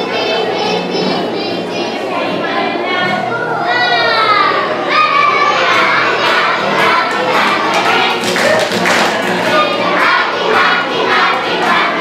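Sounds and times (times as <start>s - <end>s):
children singing together: 0.0s - 12.0s
backing music: 4.9s - 12.0s
handclaps: 5.8s - 12.0s.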